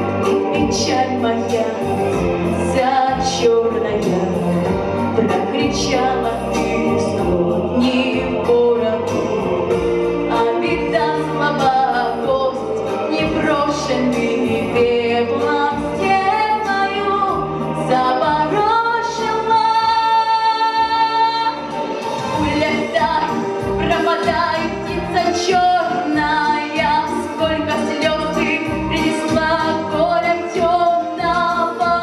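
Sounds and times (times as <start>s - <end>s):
instrumental accompaniment: 0.0s - 32.0s
girl singing into microphone: 22.4s - 32.0s.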